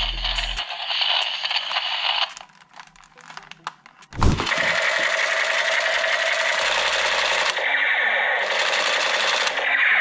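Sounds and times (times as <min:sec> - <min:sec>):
toy gun electronic buzzing: 0:00.0 - 0:02.4, 0:04.4 - 0:10.0
thud: 0:04.2 - 0:04.6.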